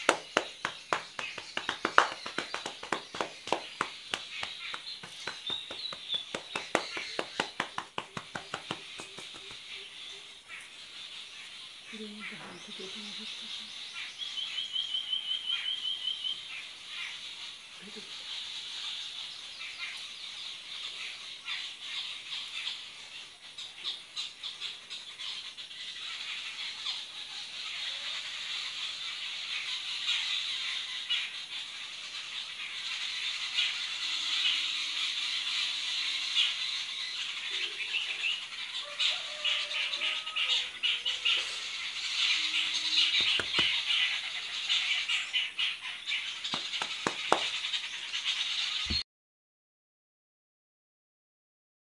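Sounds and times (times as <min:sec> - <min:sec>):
hair rustling and crackling: 0:00.0 - 0:09.5, 0:46.5 - 0:47.6.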